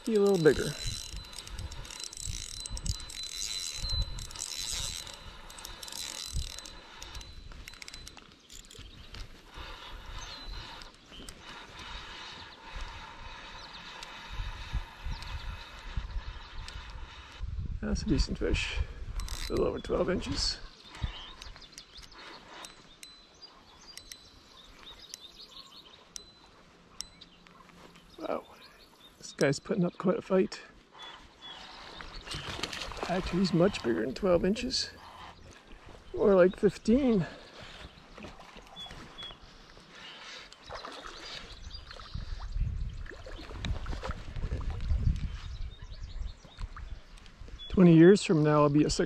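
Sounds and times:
light irregular clicks: 0.0 - 9.5, 20.8 - 25.4
fishing reel gears whirring: 0.0 - 17.4, 19.2 - 25.3
birds chirping: 0.0 - 49.0.

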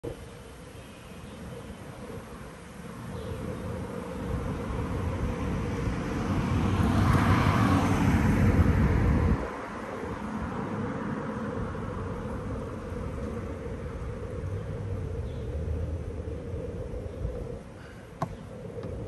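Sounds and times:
vehicle passing close: 3.9 - 16.6.

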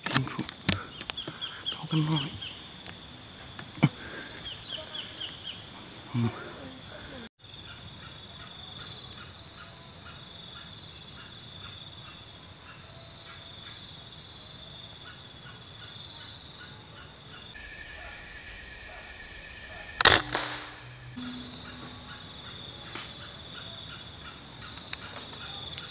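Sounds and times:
high insect drone: 0.0 - 25.9
faint chirps: 0.2 - 14.2, 20.6 - 25.9
air rifle shot crack: 20.0 - 20.8.

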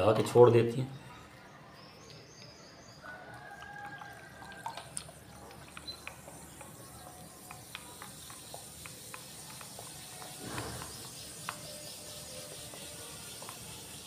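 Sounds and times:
liquid swishing: 3.4 - 14.0.

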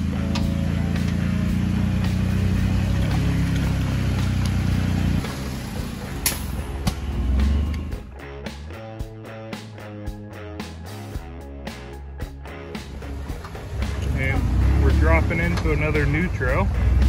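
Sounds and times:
car engine running under load: 0.0 - 8.0, 12.9 - 17.0.

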